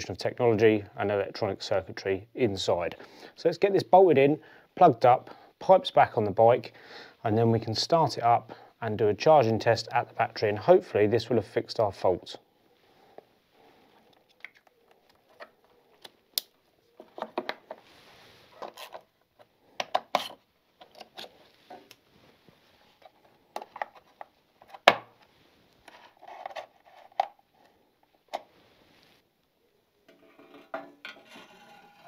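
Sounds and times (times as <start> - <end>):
scraping: 30.1 - 32.0.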